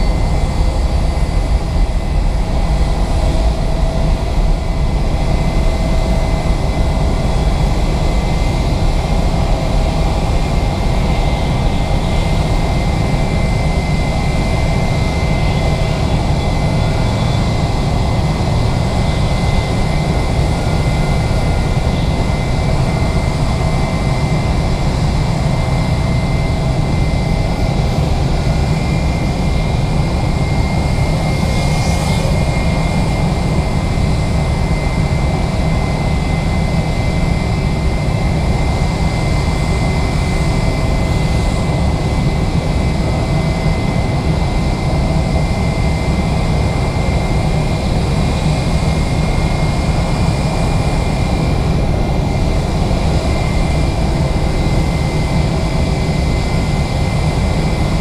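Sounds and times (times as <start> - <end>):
jet engine rumble and whine: 0.0 - 58.0.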